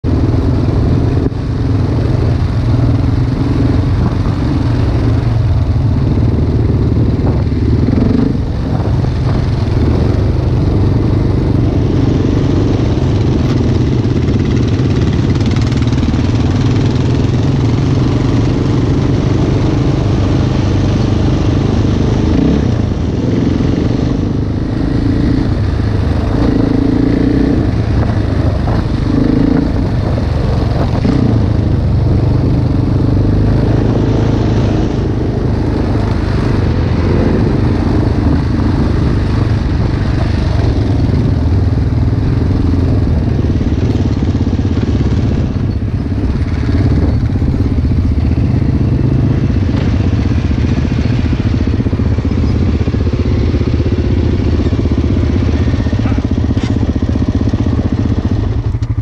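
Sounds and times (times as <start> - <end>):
dirt bike engine revving: 6.1 - 41.4.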